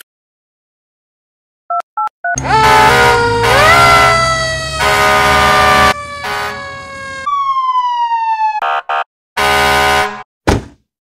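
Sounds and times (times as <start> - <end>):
fire engine siren: 2.4 - 10.2
sharp knock: 10.5 - 10.8.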